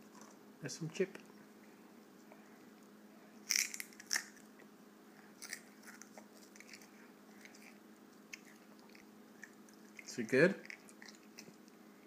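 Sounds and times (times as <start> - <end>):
child crunching potato chip: 3.4 - 4.5, 5.4 - 11.6.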